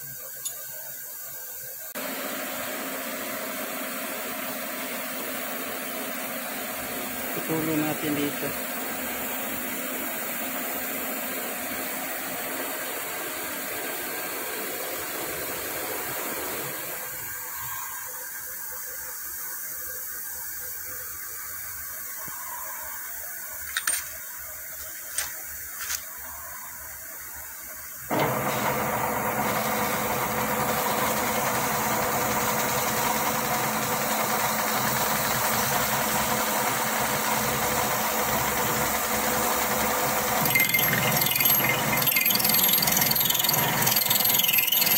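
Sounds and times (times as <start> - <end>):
metal lathe running: 28.1 - 44.9.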